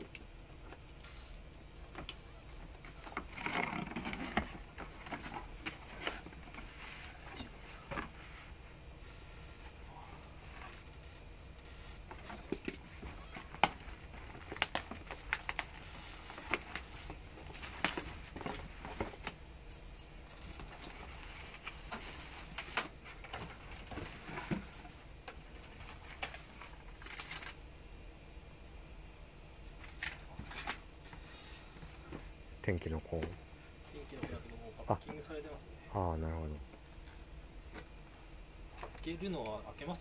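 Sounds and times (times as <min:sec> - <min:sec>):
cardboard boxes being unpacked: 0:02.8 - 0:08.3, 0:12.1 - 0:19.4.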